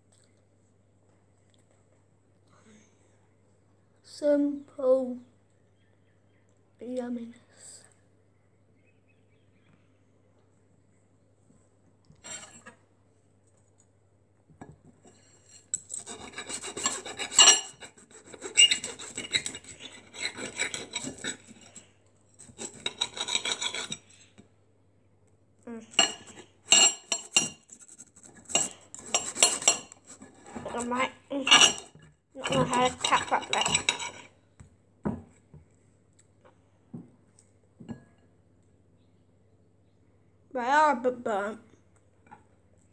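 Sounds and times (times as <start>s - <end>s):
knife and fork scraping plate: 12.2s - 12.8s, 15.1s - 24.2s, 25.9s - 34.3s.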